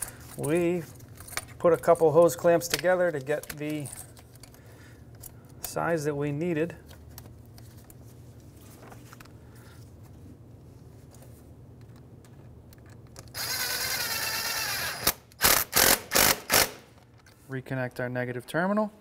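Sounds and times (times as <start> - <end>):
cordless drill whirring: 13.3 - 16.8.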